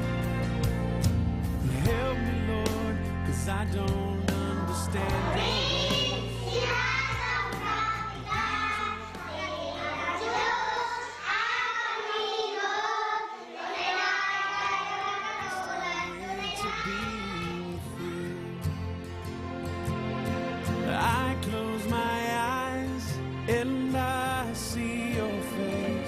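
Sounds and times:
instrumental backing music: 0:00.0 - 0:11.2, 0:15.8 - 0:26.0
children singing: 0:04.0 - 0:18.6, 0:20.9 - 0:26.0.

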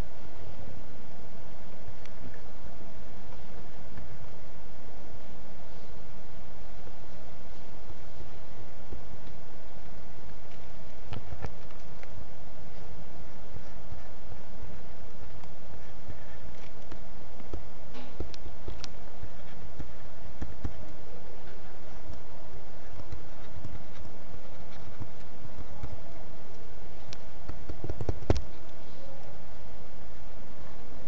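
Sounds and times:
steady background noise: 0:00.0 - 0:31.0
stylus tapping on tablet: 0:16.6 - 0:24.2, 0:27.4 - 0:28.5.

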